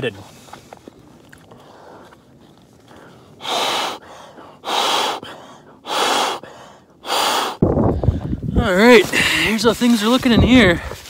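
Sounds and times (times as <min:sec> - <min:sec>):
person breathing hard: 0:02.9 - 0:08.4.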